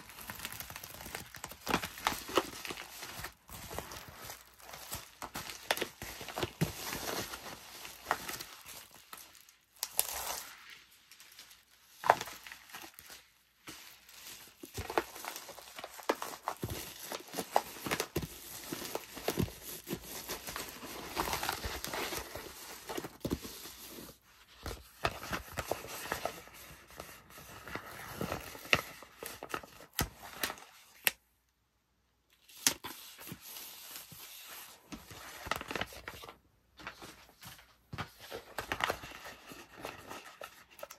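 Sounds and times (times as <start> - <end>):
plastic mailer crinkling: 0.0 - 10.5.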